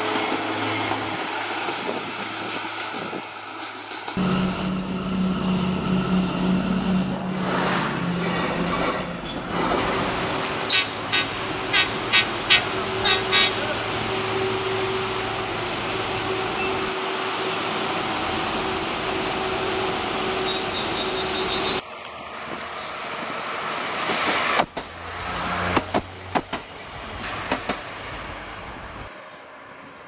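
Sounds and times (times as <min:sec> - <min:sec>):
train running with held tone: 0:00.0 - 0:29.0
train wheels clacking over rail joints: 0:07.5 - 0:13.8, 0:23.9 - 0:28.3.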